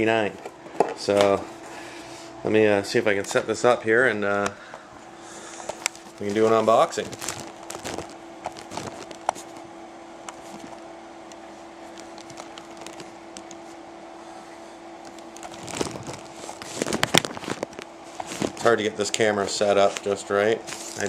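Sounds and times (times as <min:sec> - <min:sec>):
steady hum: 0:00.0 - 0:21.0
fumbling with camera: 0:05.8 - 0:09.6, 0:11.9 - 0:13.6.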